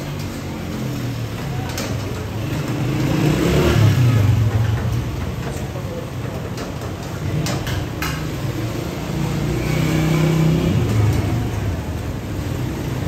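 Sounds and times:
busy street ambience: 0.0s - 13.0s
vehicle engine rumbling: 0.0s - 13.0s.

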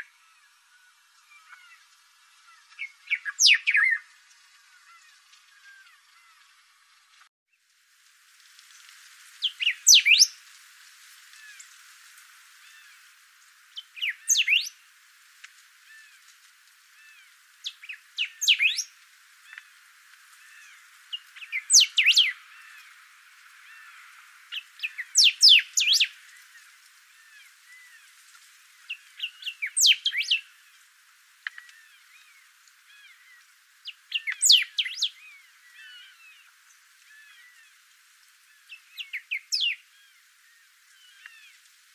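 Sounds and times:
bird singing whistled phrases: 2.8s - 4.0s, 9.4s - 10.3s, 14.0s - 14.7s, 17.9s - 18.9s, 21.4s - 22.4s, 24.8s - 26.1s, 29.2s - 30.4s, 34.1s - 35.2s, 39.0s - 39.8s
faint chirping: 9.4s - 10.4s, 13.7s - 14.8s, 16.9s - 19.8s, 20.4s - 23.0s, 23.6s - 41.6s.

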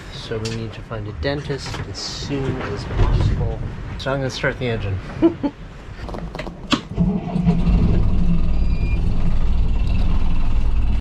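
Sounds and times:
boat engine starting and running: 6.6s - 11.0s.

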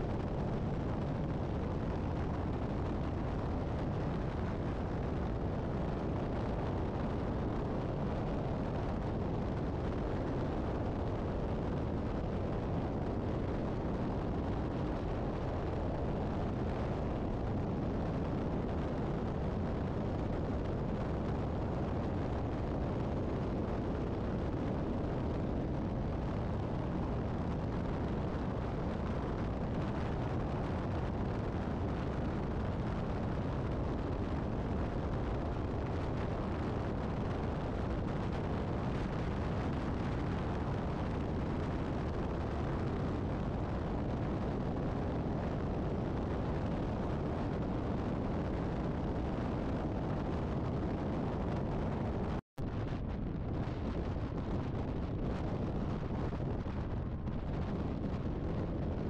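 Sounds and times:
highway tyre and wind rumble: 0.0s - 59.0s.

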